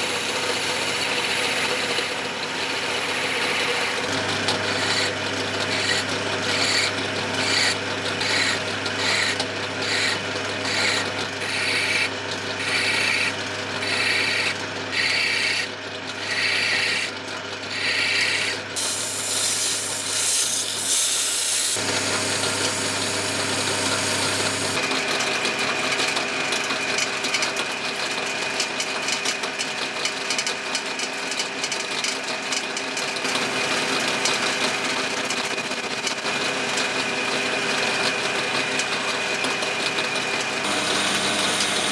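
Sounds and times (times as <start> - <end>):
wood lathe humming: 0.7 - 15.7, 30.2 - 35.6
file rasping on wood: 2.8 - 18.6
drill boring into wood: 3.0 - 17.1, 30.2 - 33.4, 34.0 - 36.2
sandpaper hissing on wood: 18.8 - 21.8.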